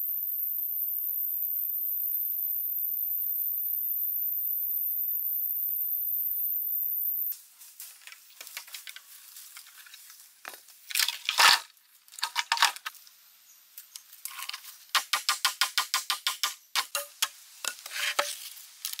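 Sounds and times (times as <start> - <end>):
footsteps in dry leaves: 7.4 - 13.0
bamboo poles clattering on ground: 7.6 - 13.0, 13.8 - 19.0
bamboo knocking and scraping: 7.8 - 13.0, 13.8 - 19.0.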